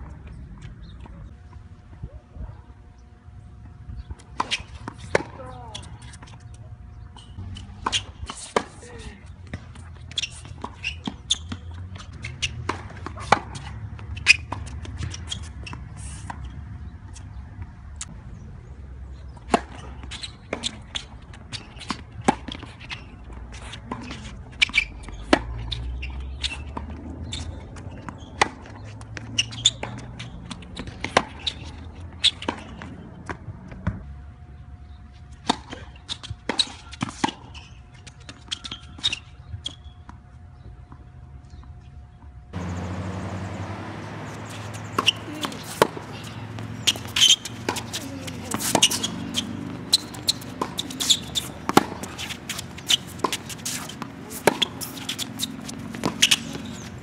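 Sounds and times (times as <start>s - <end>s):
racket hitting tennis ball: 7.3s - 8.8s, 9.5s - 16.5s, 42.6s - 57.0s
tennis ball bouncing: 9.4s - 17.3s, 19.4s - 34.0s, 42.6s - 57.0s.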